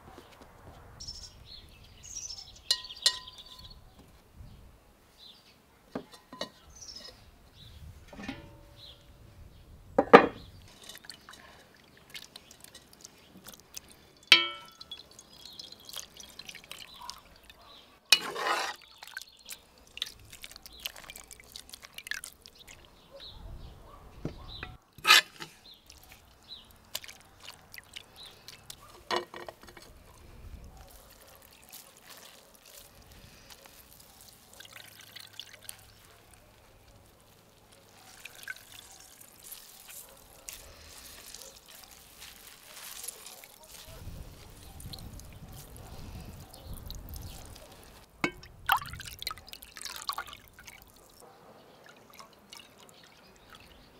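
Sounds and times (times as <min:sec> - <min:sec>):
liquid dripping through a sieve: 0:10.6 - 0:17.6, 0:18.7 - 0:23.1, 0:25.7 - 0:51.2, 0:51.8 - 0:53.9.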